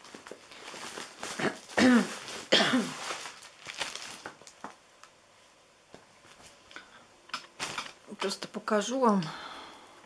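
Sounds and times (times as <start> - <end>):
plastic packaging crinkling: 0.0 - 5.2, 7.3 - 8.4.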